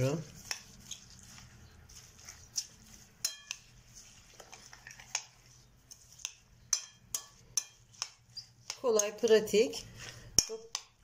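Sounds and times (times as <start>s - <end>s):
fork stirring in glass bowl: 0.0s - 11.0s
fork clinking against glass: 3.2s - 3.6s, 6.7s - 9.2s.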